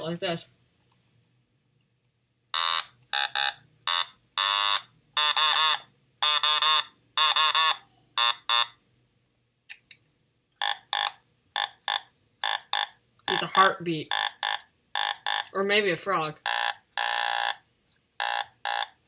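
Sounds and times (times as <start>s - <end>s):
buzzy electronic toy synth notes: 18.2s - 19.0s.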